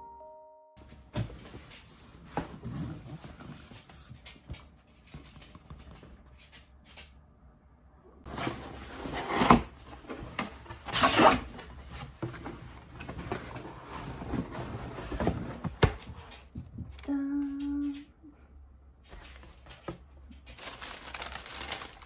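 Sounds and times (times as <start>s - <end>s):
cardboard flaps scraping and rustling: 1.1s - 4.2s, 8.3s - 16.2s, 20.6s - 22.0s
cardboard ripping: 20.6s - 22.0s.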